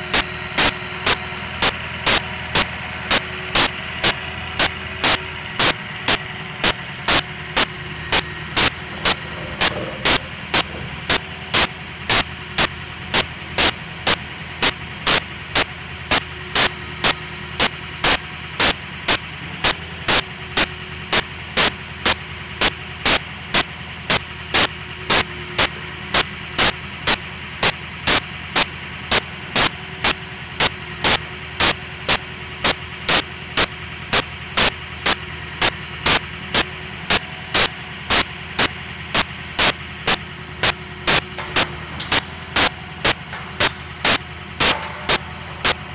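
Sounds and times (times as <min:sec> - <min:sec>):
truck engine idling: 0:00.0 - 0:45.9.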